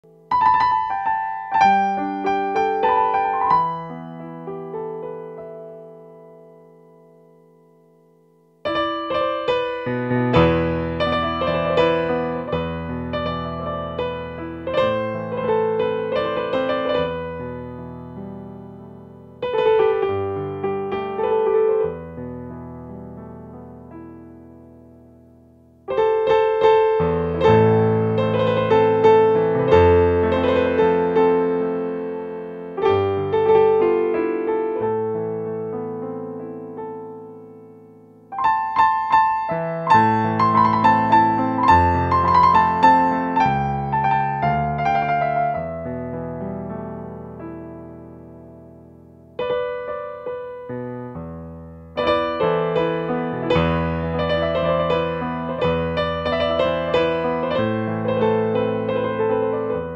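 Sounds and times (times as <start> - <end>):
piano music: 0.0 - 59.9.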